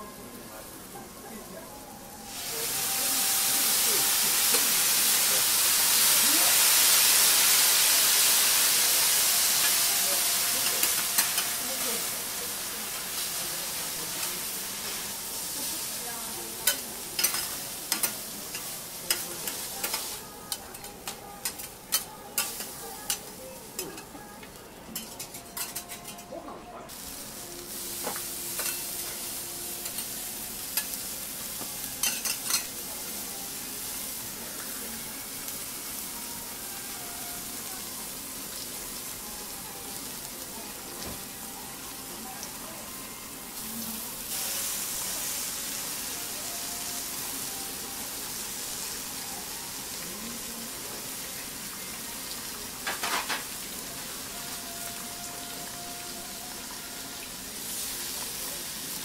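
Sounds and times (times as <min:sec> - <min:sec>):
food sizzling on griddle: 0:00.0 - 0:59.0.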